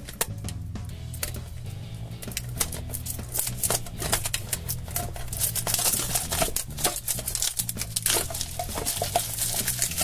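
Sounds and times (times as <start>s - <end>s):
faint background music: 0.0s - 10.0s
plastic shrink-wrap crackling: 2.3s - 10.0s.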